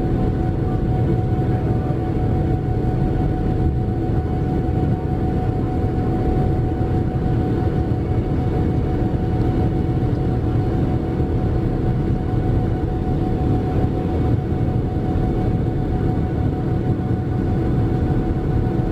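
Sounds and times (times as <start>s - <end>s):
jet engine cabin rumble: 0.0s - 18.9s.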